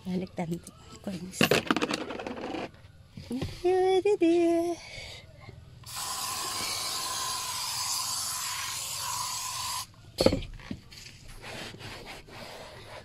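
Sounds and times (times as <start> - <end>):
thump: 10.2 - 10.8.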